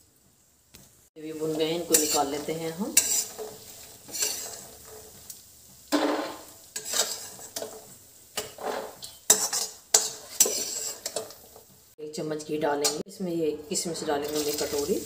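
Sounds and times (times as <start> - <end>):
hot pan sizzling: 0.0 - 15.0
metal spoon scraping metal pan: 1.3 - 11.7, 12.7 - 15.0
spoon clanking on pan: 1.8 - 11.5, 12.8 - 13.0.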